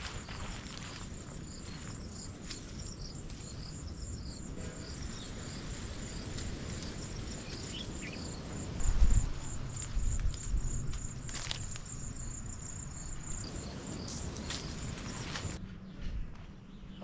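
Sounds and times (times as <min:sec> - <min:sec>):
crickets chirring: 0:00.0 - 0:15.6.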